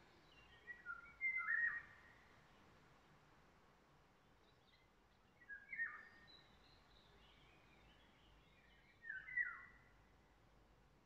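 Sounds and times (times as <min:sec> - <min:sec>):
quiet woodland background: 0:00.0 - 0:11.0
songbird singing: 0:00.2 - 0:02.3, 0:05.4 - 0:09.8.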